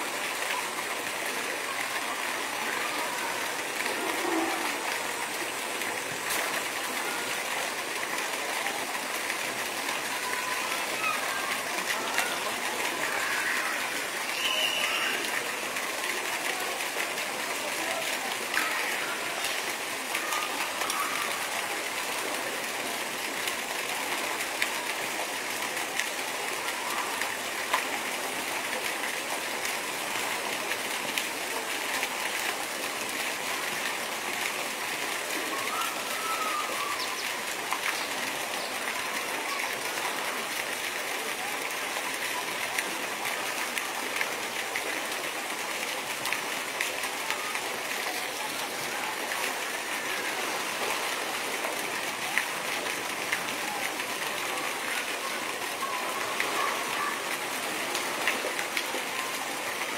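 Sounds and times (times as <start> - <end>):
running water: 0.0 - 59.9.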